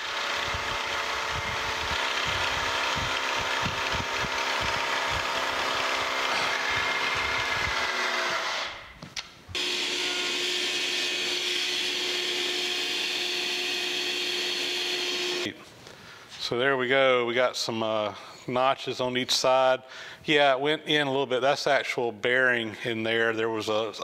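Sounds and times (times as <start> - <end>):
milling machine hum: 0.0 - 8.4, 9.6 - 15.5
end mill cutting metal rumble: 9.6 - 15.5.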